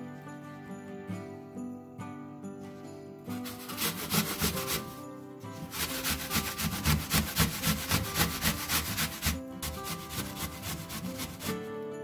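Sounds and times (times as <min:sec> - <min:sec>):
apple rasping on grater: 0:03.4 - 0:05.0, 0:05.6 - 0:11.6.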